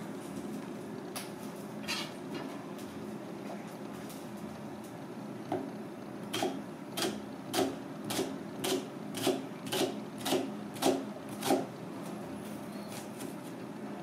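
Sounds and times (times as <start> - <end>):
knife slicing onion on cutting board: 6.4 - 11.7.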